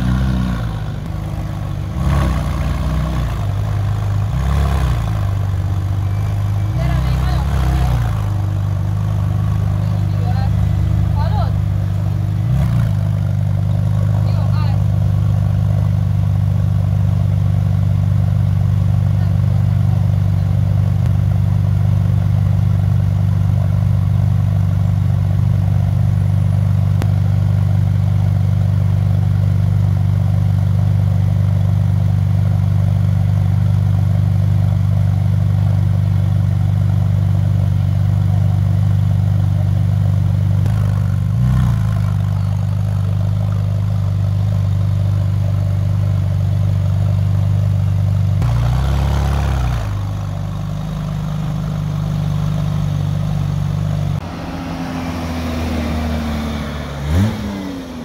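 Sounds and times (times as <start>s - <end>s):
car engine idling: 0.0s - 58.0s.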